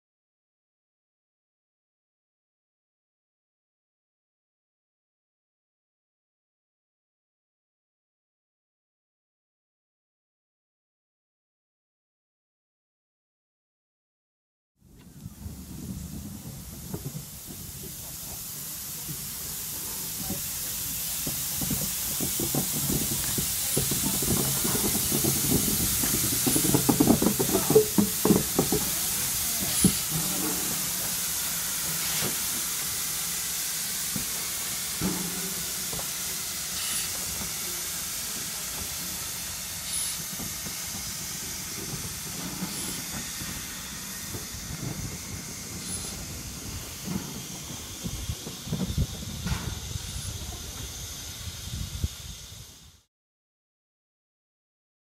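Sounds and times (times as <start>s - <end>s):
steam hissing: 15.0s - 53.1s
locomotive knocks and clanks: 19.1s - 31.2s, 34.2s - 36.3s, 39.8s - 50.9s.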